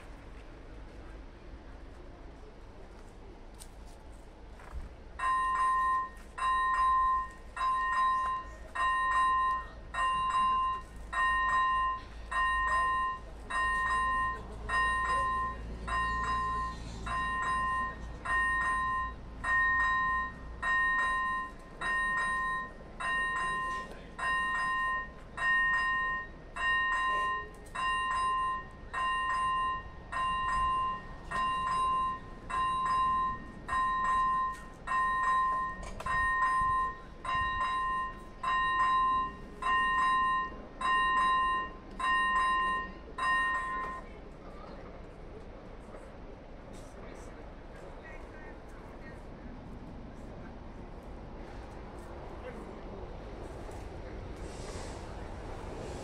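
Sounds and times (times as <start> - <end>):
level-crossing bell ringing: 5.2 - 44.2.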